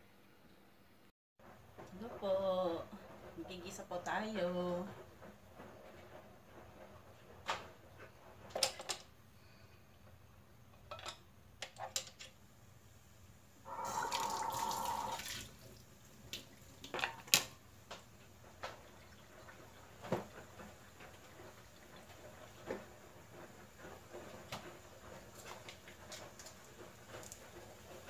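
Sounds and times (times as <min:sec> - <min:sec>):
liquid pouring: 0:13.7 - 0:17.2.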